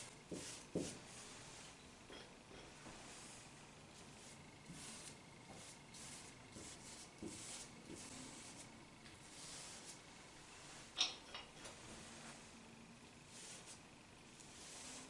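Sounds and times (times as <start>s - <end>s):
marker pen rubbing on board: 0.3s - 1.7s, 4.1s - 10.0s, 14.4s - 15.0s.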